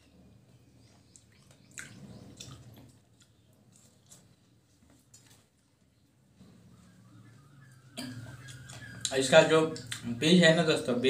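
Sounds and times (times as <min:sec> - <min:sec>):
person chewing watermelon: 0:00.8 - 0:05.5, 0:08.0 - 0:10.1.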